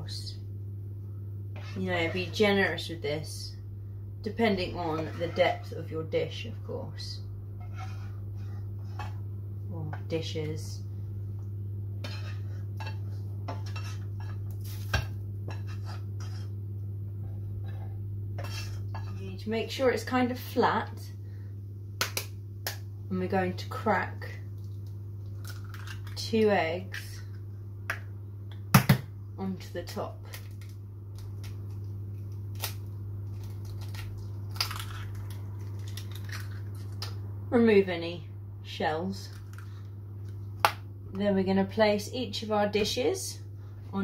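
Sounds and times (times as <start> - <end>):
steady low hum: 0.0 - 44.0
spoon scraping metal saucepan: 4.7 - 5.8, 7.6 - 8.2, 12.0 - 14.4, 18.4 - 19.2
eggshell cracking: 30.3 - 37.2.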